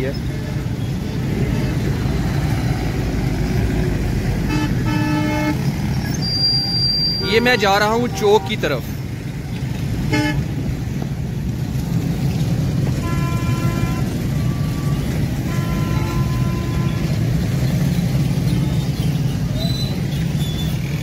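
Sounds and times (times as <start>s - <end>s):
road traffic rumble: 0.0s - 21.0s
vehicle horns honking: 4.4s - 8.8s, 10.0s - 10.6s, 12.9s - 17.6s.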